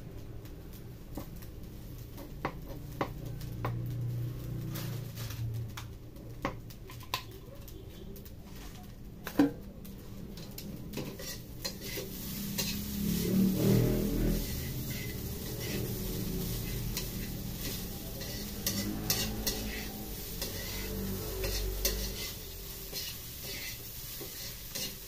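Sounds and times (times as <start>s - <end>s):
light sizzling: 0.0s - 25.0s
metal spatula scraping a wok: 10.0s - 25.0s.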